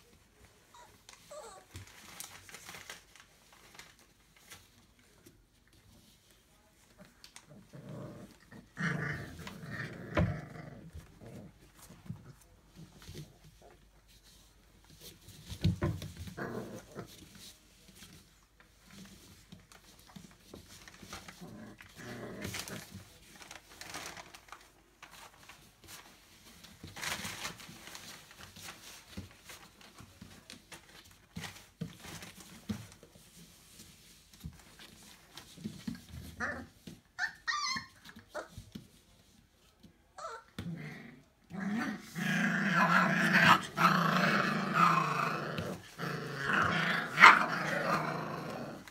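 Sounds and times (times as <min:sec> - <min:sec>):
puppies squeaking: 0:00.7 - 0:01.6, 0:37.2 - 0:38.0.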